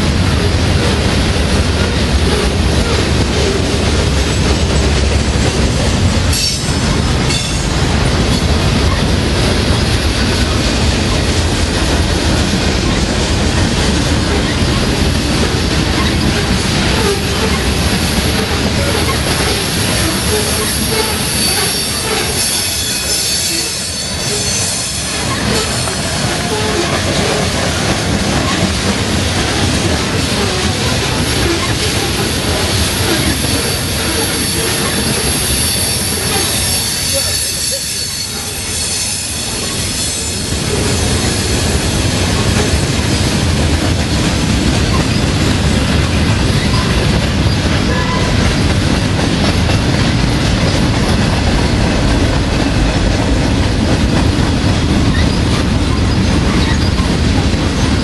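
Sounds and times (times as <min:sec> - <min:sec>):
freight train wheels rumbling on rails: 0:00.0 - 0:58.0
high wheel squeal: 0:16.0 - 0:27.5, 0:30.3 - 0:41.6.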